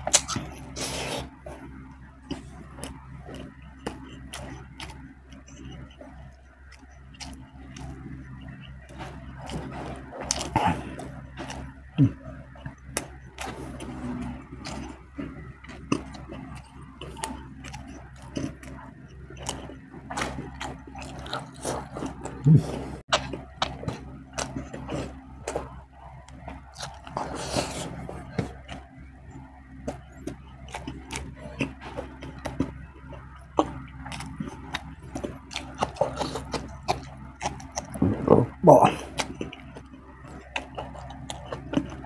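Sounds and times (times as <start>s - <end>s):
person chewing and lip smacking: 0.0s - 42.0s
steady low hum: 0.0s - 42.0s.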